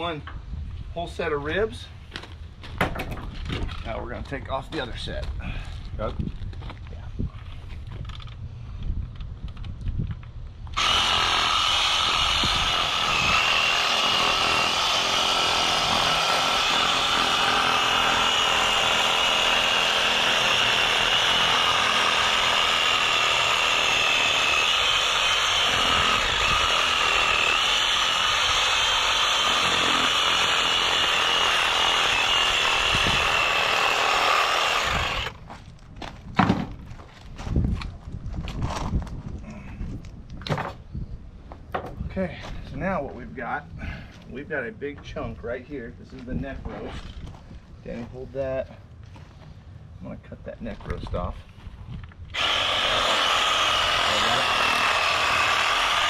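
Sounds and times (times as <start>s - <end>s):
reciprocating saw cutting bone: 10.8s - 35.3s, 52.4s - 56.0s.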